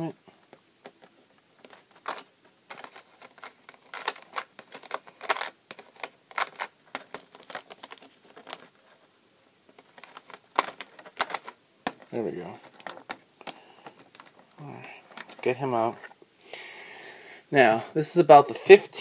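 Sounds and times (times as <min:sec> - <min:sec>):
plastic packaging clicks and crackles: 0:00.5 - 0:08.9, 0:09.7 - 0:16.1.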